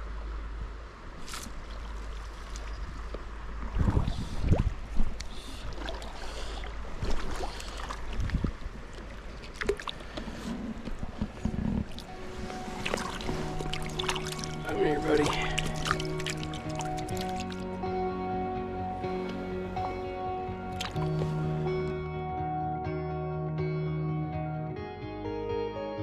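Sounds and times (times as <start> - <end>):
small stream running: 0.0 - 17.8
low knocks and splashes: 1.2 - 17.6.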